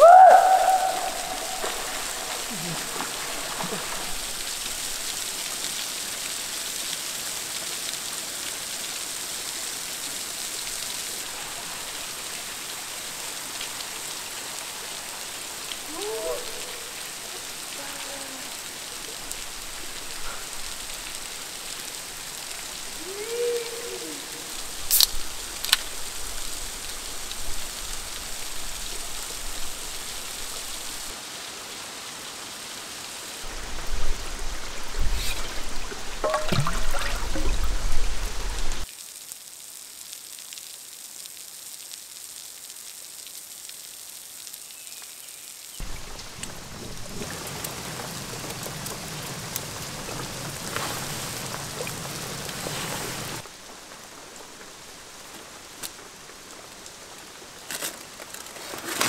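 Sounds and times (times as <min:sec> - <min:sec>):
rain falling: 0:00.0 - 0:59.0
pan splashing in stream: 0:01.0 - 0:05.1, 0:35.0 - 0:38.2.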